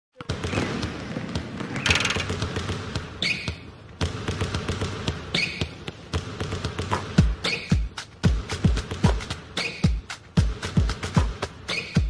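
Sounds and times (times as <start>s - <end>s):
basketball bouncing on asphalt: 0.2s - 8.4s.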